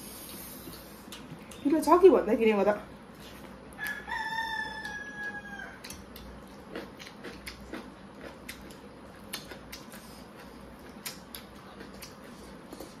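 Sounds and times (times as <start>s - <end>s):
chewing: 3.1s - 13.0s
eating with fingers and spoon: 3.1s - 13.0s
rooster crowing: 3.8s - 5.9s.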